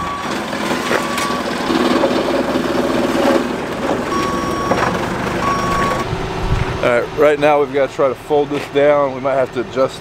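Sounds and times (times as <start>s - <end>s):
reversing alarm beeping: 0.0s - 1.9s, 4.0s - 6.1s
forklift engine running: 0.0s - 10.0s.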